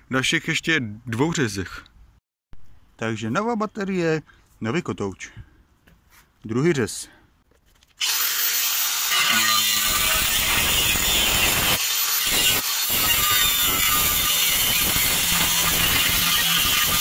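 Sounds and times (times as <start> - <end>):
angle grinder cutting steel: 8.0 - 17.0.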